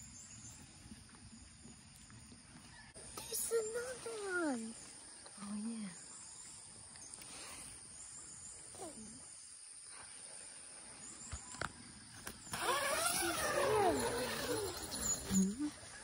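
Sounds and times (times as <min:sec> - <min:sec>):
high-pitched insect drone: 0:12.5 - 0:15.8.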